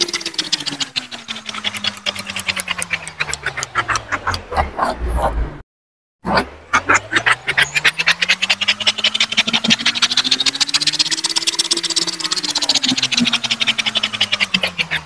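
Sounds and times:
plastic gear teeth clicking: 0:00.0 - 0:05.0
whirring hum: 0:00.0 - 0:05.6, 0:06.3 - 0:15.0
pen scraping on paper: 0:01.5 - 0:05.5.

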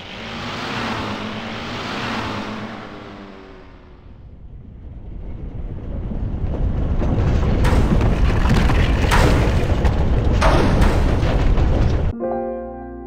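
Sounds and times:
deep earthquake rumble: 0:03.8 - 0:12.1
crashing and rattling: 0:06.4 - 0:12.1.

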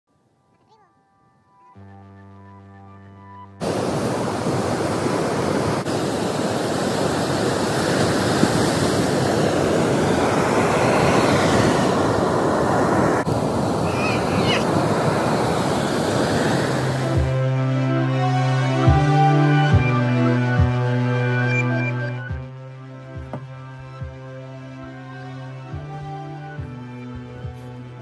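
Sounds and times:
surf breaking on beach: 0:03.6 - 0:17.4.

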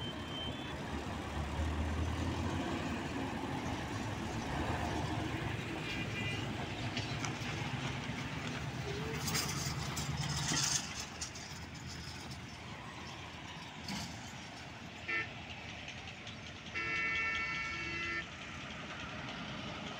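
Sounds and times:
vehicle horn beeping: 0:00.0 - 0:00.8, 0:05.8 - 0:06.6, 0:15.0 - 0:15.4, 0:16.7 - 0:18.4
road traffic noise: 0:00.0 - 0:19.9
truck engine hum: 0:00.0 - 0:19.9.

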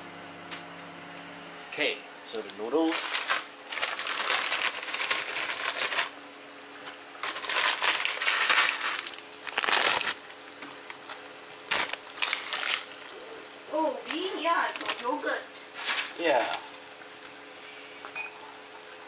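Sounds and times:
plastic packets crinkling and tearing: 0:02.7 - 0:06.2, 0:06.8 - 0:13.2, 0:14.0 - 0:16.2.

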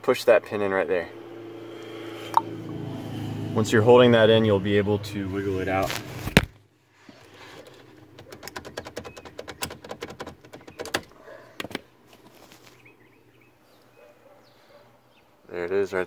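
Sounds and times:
lock cylinder clicking and rattling: 0:07.9 - 0:11.8.

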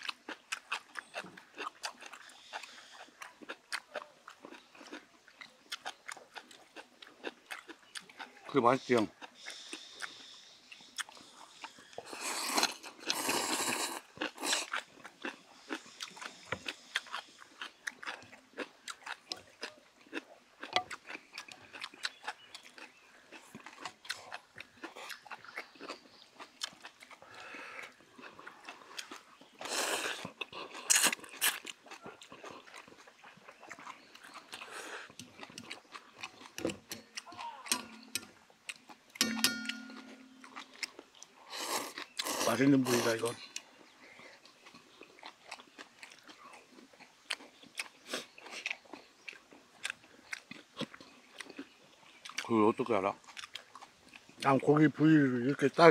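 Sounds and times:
chewing: 0:00.0 - 0:55.9
noodle slurping: 0:11.0 - 0:14.9
chopsticks clicking against metal bowls: 0:36.9 - 0:38.4, 0:39.2 - 0:40.6.

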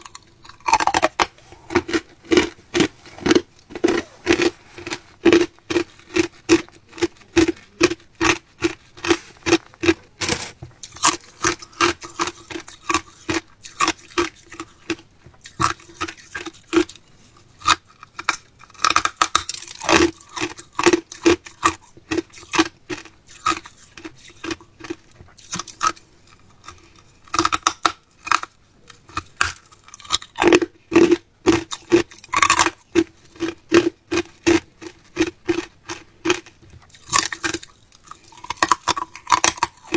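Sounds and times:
ice being chewed: 0:00.0 - 0:39.9.

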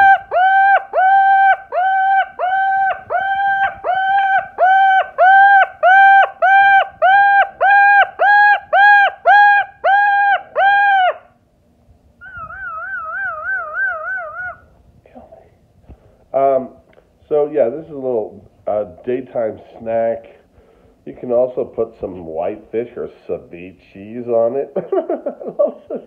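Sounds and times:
cockatoo calling: 0:00.0 - 0:11.4, 0:12.2 - 0:14.8
cockatoo warbling call: 0:00.0 - 0:11.4, 0:12.2 - 0:14.8.

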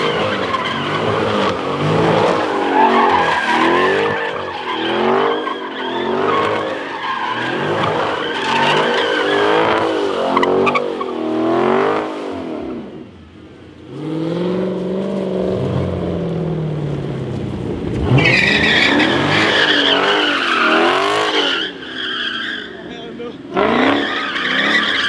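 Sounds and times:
tyres squealing on asphalt: 0:00.0 - 0:12.0, 0:17.8 - 0:25.0
car engine revving: 0:00.0 - 0:25.0.

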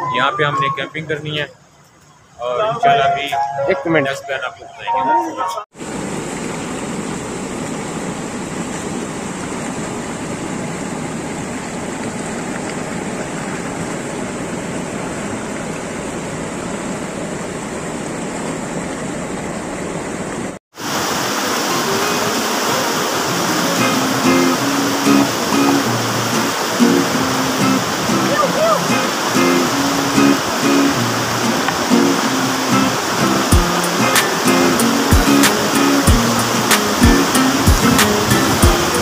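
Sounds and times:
river rapids rushing over rocks: 0:20.8 - 0:39.0.

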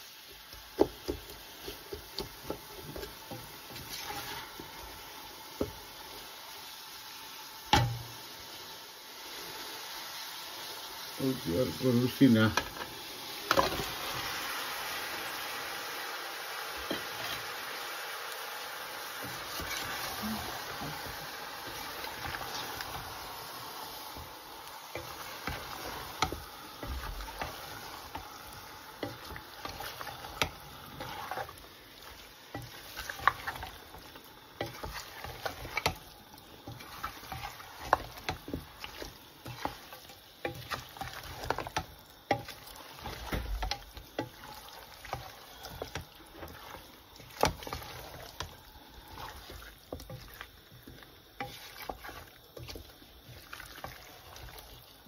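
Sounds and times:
spatula scraping a metal pot: 0:01.6 - 0:04.6, 0:16.9 - 0:17.5, 0:19.2 - 0:20.9, 0:29.0 - 0:31.6, 0:36.7 - 0:43.4.

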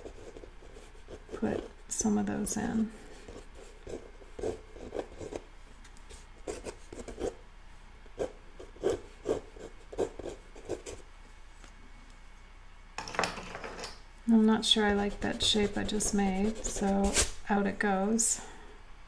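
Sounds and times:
pencil scratching on paper: 0:00.0 - 0:01.7, 0:03.2 - 0:05.4, 0:06.1 - 0:07.4, 0:08.2 - 0:11.0, 0:14.7 - 0:17.4.

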